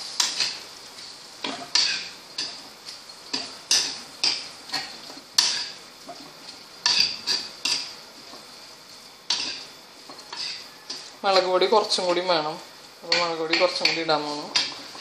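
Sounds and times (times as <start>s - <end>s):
metal spoon scraping a pot: 10.2s - 11.1s.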